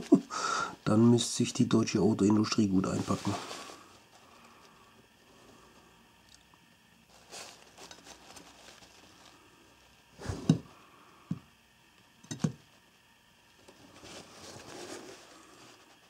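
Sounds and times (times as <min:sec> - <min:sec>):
paper rustling: 0:02.5 - 0:04.8, 0:07.1 - 0:09.4, 0:13.7 - 0:16.0
dull thumps and knocks: 0:10.2 - 0:10.7.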